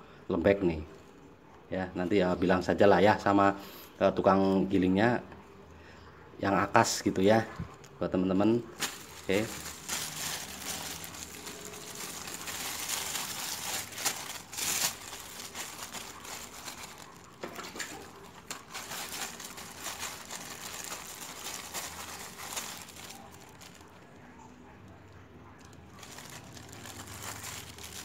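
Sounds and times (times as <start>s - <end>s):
plastic bag crinkling: 8.7s - 24.3s, 25.6s - 28.0s.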